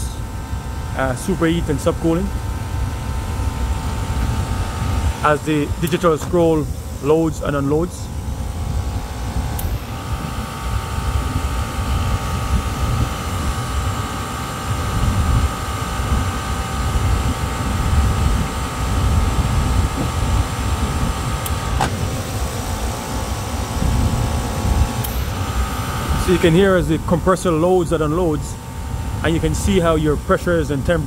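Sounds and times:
steady tone: 0.0 - 16.2, 21.5 - 29.7
compressor running: 0.0 - 31.0.

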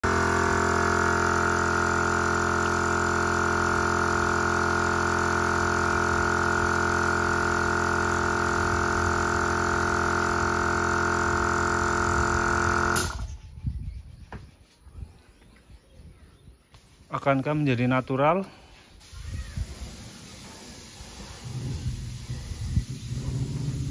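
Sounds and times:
air compressor running: 0.0 - 13.4, 18.5 - 23.9
spray gun hissing: 19.0 - 23.9.

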